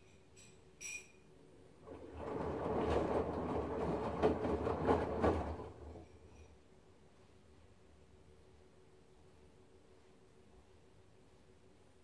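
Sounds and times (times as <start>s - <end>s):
washing machine drum sloshing water: 1.8s - 6.1s.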